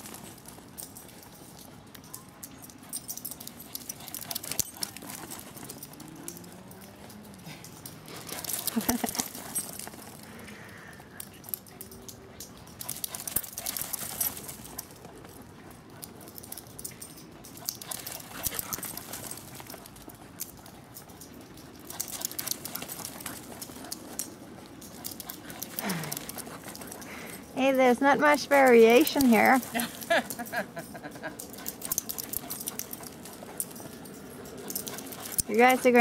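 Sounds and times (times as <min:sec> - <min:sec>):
dog paws pattering on dirt: 0:00.0 - 0:36.0
low dog vocal sounds: 0:24.8 - 0:27.6.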